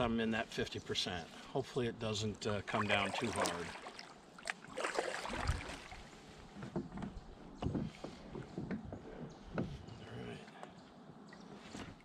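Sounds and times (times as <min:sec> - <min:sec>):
paddle splashing water: 0:02.6 - 0:06.9.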